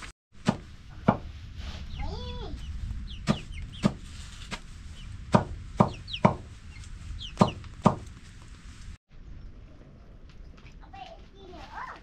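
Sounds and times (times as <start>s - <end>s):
sharp chopping knocks: 0.4s - 1.2s, 3.2s - 4.6s, 5.3s - 6.5s, 7.4s - 8.1s
chickens clucking and chirping: 1.9s - 4.2s, 4.9s - 8.0s.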